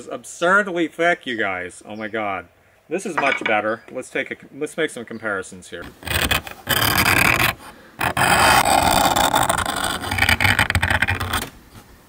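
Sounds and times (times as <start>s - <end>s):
tool scratching slate: 6.0s - 11.5s.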